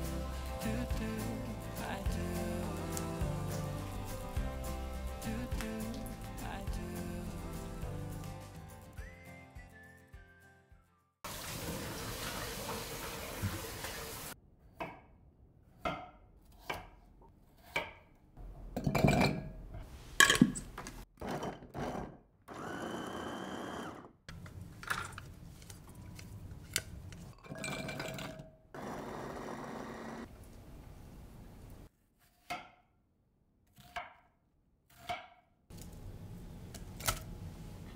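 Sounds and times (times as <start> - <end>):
electric food chopper running: 21.8 - 24.2, 28.8 - 30.3.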